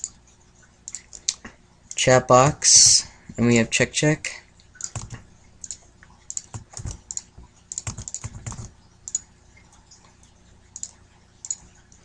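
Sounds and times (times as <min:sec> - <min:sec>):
computer keyboard typing: 0:04.8 - 0:09.3, 0:10.8 - 0:12.0.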